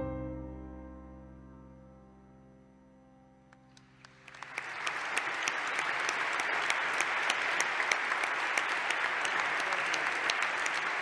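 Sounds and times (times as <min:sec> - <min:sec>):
music notes: 0:00.0 - 0:02.9
audience applauding: 0:03.7 - 0:11.0.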